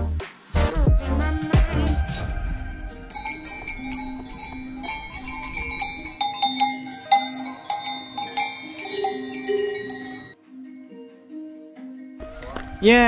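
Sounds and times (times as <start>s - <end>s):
bell-like tones: 3.1s - 10.4s.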